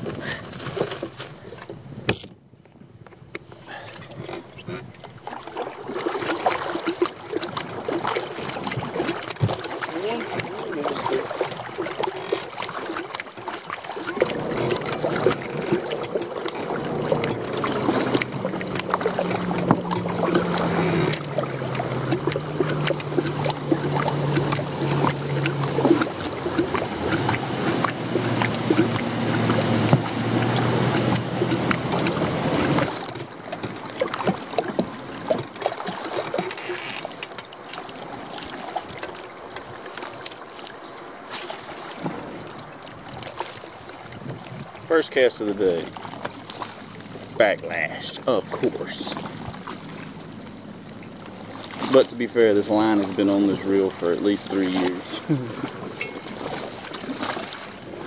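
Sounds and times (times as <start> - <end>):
paddle splashing in water: 0.0 - 58.0
low hum stepping down in pitch: 14.1 - 32.8.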